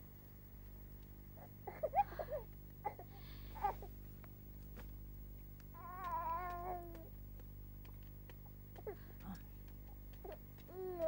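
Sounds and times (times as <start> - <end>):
baby whining: 5.8 - 7.1, 10.2 - 11.0.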